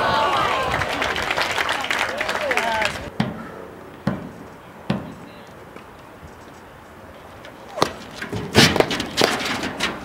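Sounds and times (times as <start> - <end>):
sharp knocks and clatter: 7.8 - 10.0.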